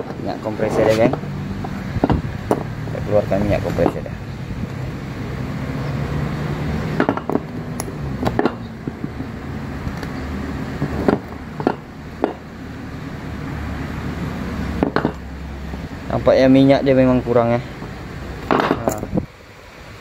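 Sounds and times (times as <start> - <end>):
steady low hum: 0.0 - 20.0
metal knocks and clicks: 1.1 - 2.7, 7.0 - 9.3, 10.8 - 12.4, 14.8 - 15.2, 18.4 - 19.1.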